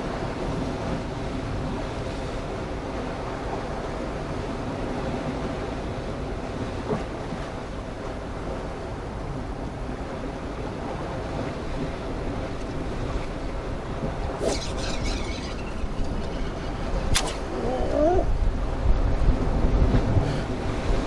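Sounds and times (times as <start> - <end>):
wind on microphone: 0.0 - 21.0
waves washing against rocks: 10.2 - 21.0.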